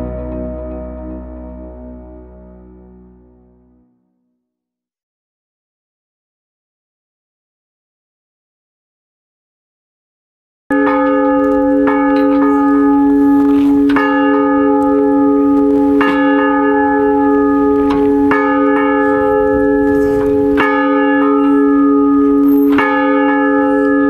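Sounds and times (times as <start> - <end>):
bell ringing: 10.7 - 24.0.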